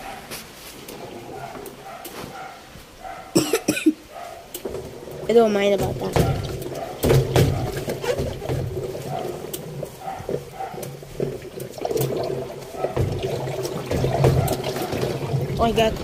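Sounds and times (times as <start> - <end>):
damp laundry rustling: 0.0 - 3.4, 4.1 - 16.0
water sloshing: 0.0 - 3.5, 4.1 - 16.0
knocks against washing machine tub: 5.7 - 8.9, 12.9 - 16.0.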